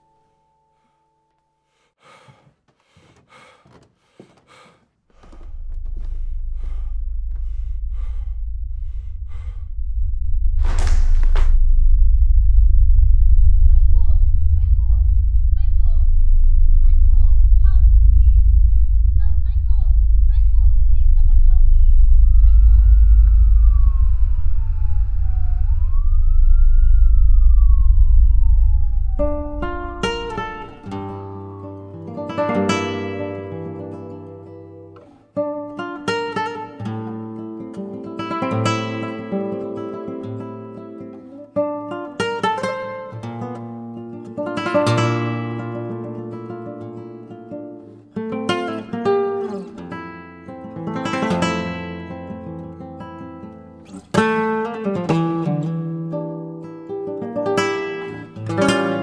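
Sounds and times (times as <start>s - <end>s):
man panting hard: 1.6s - 9.8s
loud long gasp: 1.7s - 9.8s
deep low rumble: 5.2s - 31.0s
emergency siren wailing: 21.9s - 31.2s.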